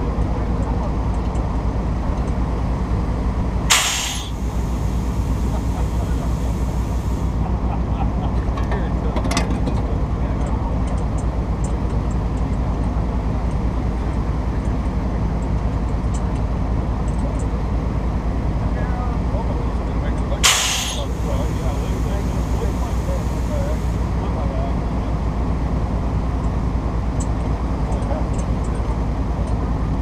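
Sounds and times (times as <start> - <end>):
truck engine rumbling: 0.0 - 30.0
air hiss: 3.7 - 7.4, 20.4 - 24.0.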